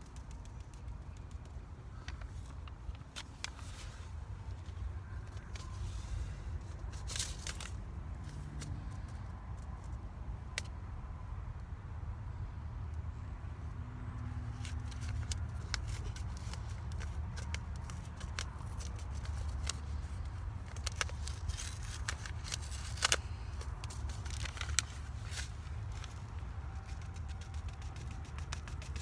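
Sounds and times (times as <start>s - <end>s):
hands scratching in garden soil: 14.6s - 29.0s.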